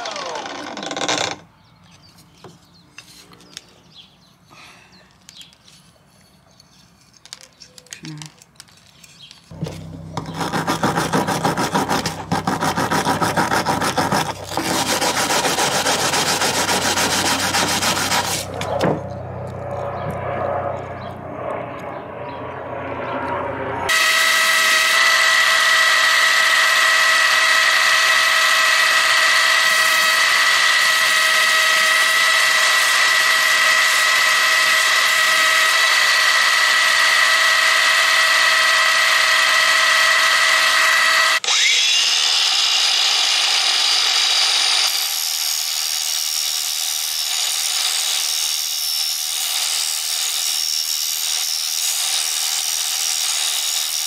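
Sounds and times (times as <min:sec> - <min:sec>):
quieter power tool running: 0:00.0 - 0:01.4, 0:09.5 - 0:45.2
power tool motor whining: 0:00.0 - 0:01.5, 0:09.5 - 0:21.6, 0:23.2 - 0:54.0.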